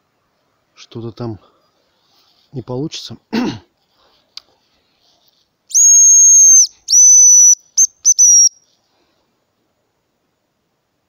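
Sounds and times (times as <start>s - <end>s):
bird call whistle: 5.7s - 8.6s.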